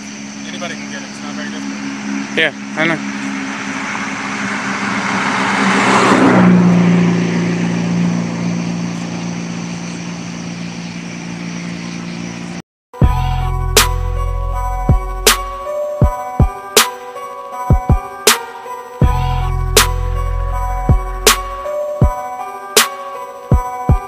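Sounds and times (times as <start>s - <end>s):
car passing by: 0.4s - 11.9s.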